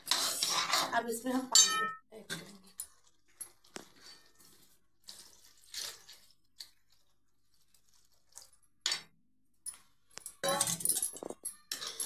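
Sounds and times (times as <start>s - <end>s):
water pouring into a pan: 3.7s - 8.6s.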